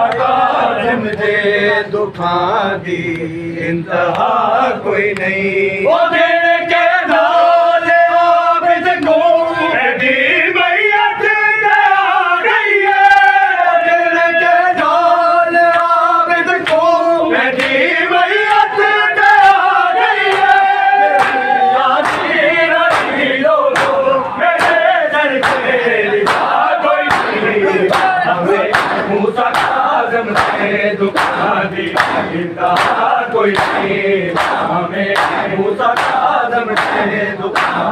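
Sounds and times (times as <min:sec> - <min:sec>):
crowd of men chanting: 0:00.0 - 0:37.9
hands beating on chests: 0:24.6 - 0:37.9.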